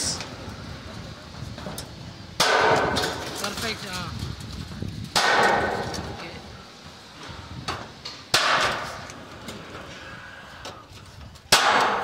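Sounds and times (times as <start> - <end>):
nail gun shots: 5.2 - 6.0, 8.3 - 9.0, 11.5 - 12.0.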